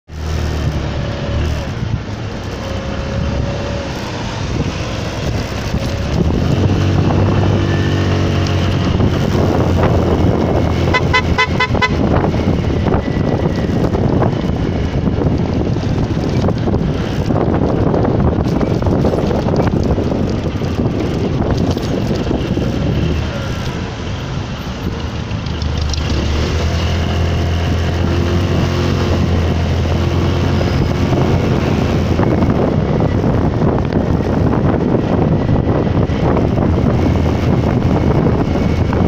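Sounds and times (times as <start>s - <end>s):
vehicle engine and road noise: 0.0s - 39.0s
wind: 0.0s - 39.0s
car horn short beeps: 10.9s - 12.2s.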